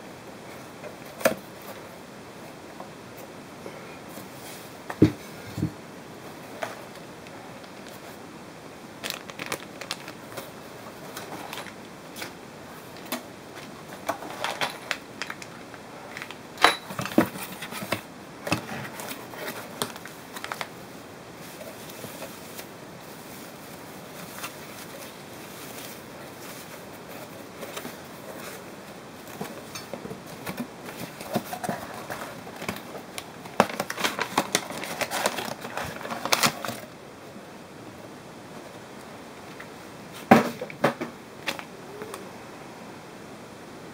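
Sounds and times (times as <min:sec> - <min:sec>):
plastic and paper crinkling: 0:06.3 - 0:08.2, 0:08.9 - 0:36.9.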